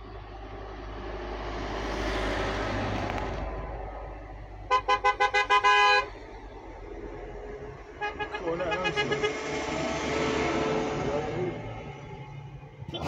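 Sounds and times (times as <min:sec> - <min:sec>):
lorry passing: 0:00.0 - 0:13.0
lorry horn tooting: 0:04.7 - 0:06.2, 0:07.7 - 0:10.2.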